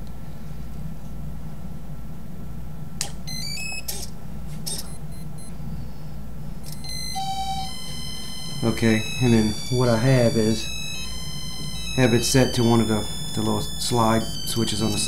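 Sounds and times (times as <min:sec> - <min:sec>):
steady low hum: 0:00.0 - 0:15.0
electronic beeps at stepped pitches: 0:04.7 - 0:05.5, 0:06.7 - 0:15.0
steady beep tones: 0:04.7 - 0:05.5, 0:06.7 - 0:15.0.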